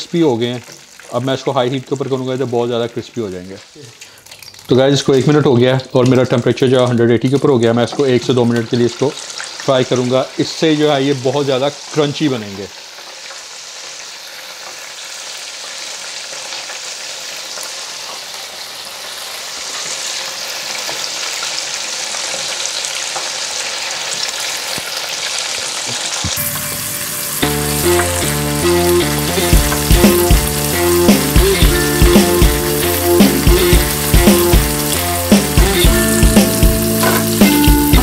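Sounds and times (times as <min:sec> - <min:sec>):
oil sizzling and crackling: 0:00.0 - 0:38.0
background music with a beat: 0:26.4 - 0:38.0.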